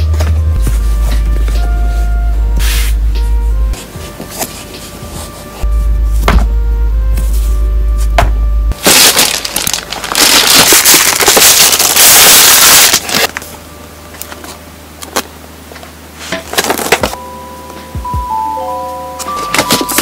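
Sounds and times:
plastic bag crinkling: 8.8 - 13.4.

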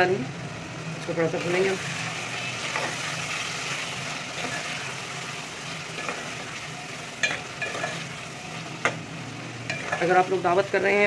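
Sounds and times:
food sizzling in a pot: 0.0 - 11.0
metal spoon stirring: 4.3 - 4.9, 7.2 - 8.2, 9.7 - 10.4
spoon clinking against pot: 7.2 - 8.0, 9.7 - 10.1.

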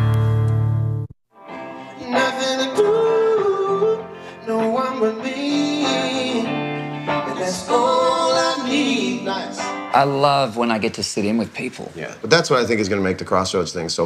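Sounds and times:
live band with electric guitars: 0.0 - 10.0.

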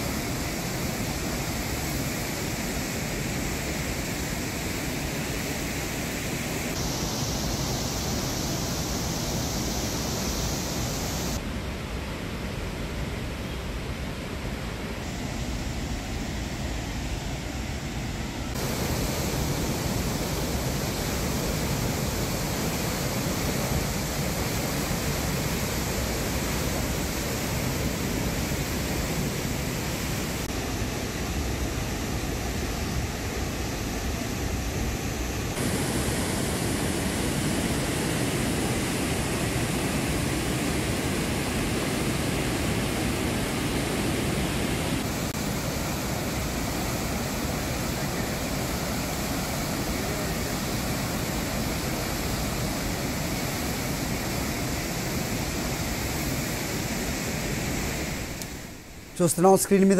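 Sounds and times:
water rushing through spillway: 18.5 - 59.3.

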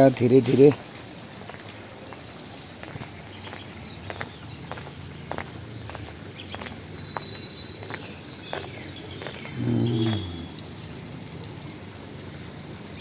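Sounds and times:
light footsteps: 1.4 - 10.3
short low falling call: 9.5 - 10.7.

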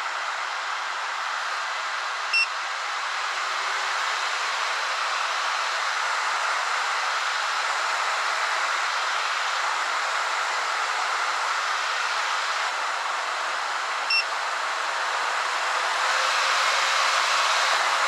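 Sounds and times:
short electronic beep: 2.3 - 2.5.

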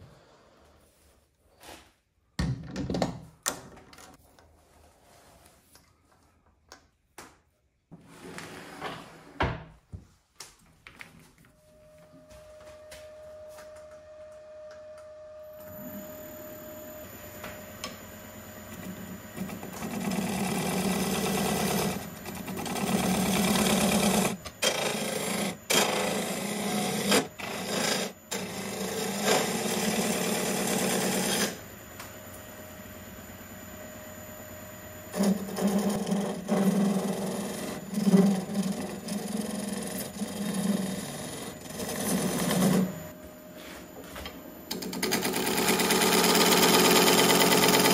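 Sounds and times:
wood lathe running: 18.7 - 31.6, 35.1 - 43.1, 44.7 - 47.9
gouge cutting spinning wood: 19.4 - 31.6, 35.1 - 43.0, 45.0 - 47.9.

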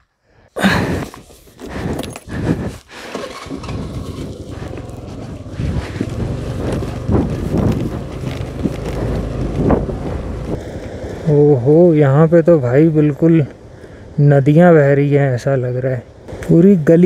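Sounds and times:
scooter engine humming: 0.6 - 11.3
wind noise on microphone: 0.7 - 11.2.

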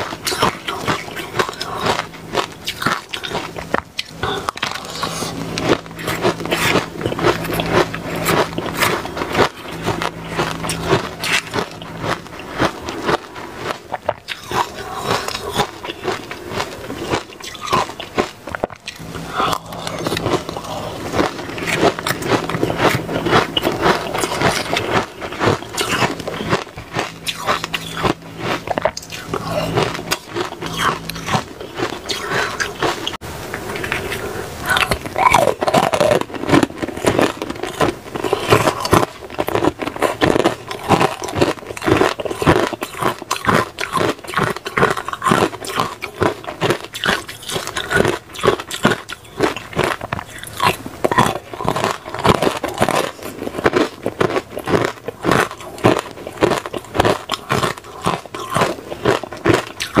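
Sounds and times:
ice being bitten and crunched: 0.0 - 60.0.

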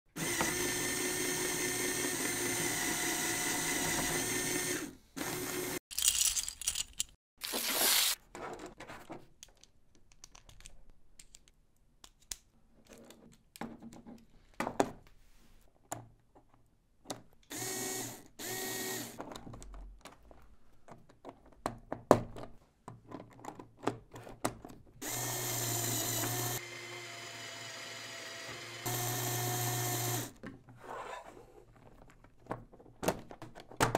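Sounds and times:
plastic pieces clicking together: 5.9 - 7.2, 9.4 - 13.6
toy motor whining through gears: 17.6 - 19.2, 25.0 - 30.3.

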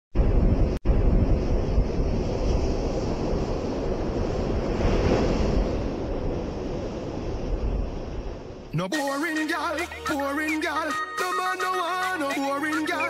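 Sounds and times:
wind noise on microphone: 0.2 - 8.7.

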